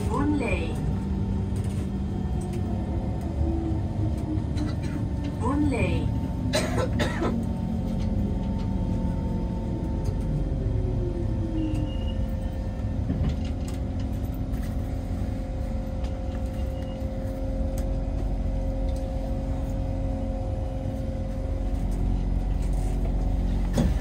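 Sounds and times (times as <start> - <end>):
train rumbling: 0.0 - 24.0.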